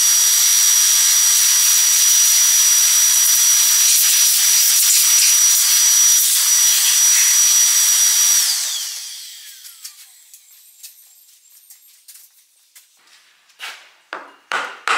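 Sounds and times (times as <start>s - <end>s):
shop vacuum whining: 0.0s - 11.8s.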